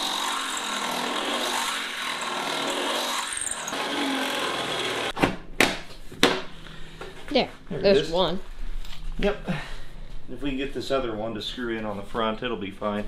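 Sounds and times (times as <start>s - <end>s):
cordless drill boring sheet metal: 0.0s - 5.2s.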